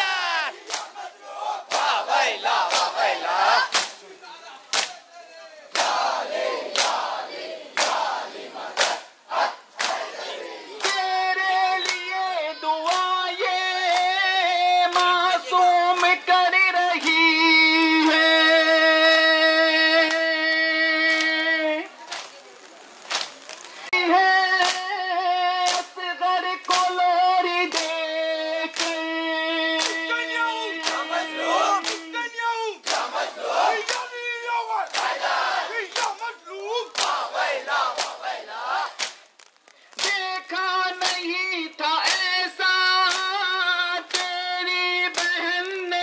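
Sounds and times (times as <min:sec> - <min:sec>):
person singing lament: 0:00.0 - 0:00.6
crowd chest-beating: 0:00.0 - 0:05.0, 0:05.7 - 0:16.2, 0:28.7 - 0:41.3
crowd shouting: 0:00.0 - 0:16.2, 0:29.8 - 0:39.0
person singing long notes: 0:10.8 - 0:22.0.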